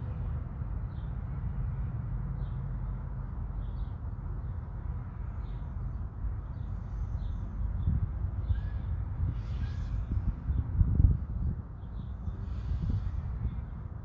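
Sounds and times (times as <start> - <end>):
wind on microphone: 7.3 - 14.0.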